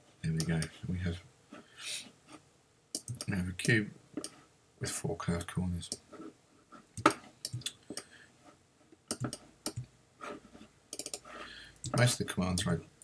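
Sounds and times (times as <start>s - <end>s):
computer mouse clicking: 2.9s - 4.4s, 7.0s - 8.1s, 9.1s - 9.9s, 10.9s - 12.7s.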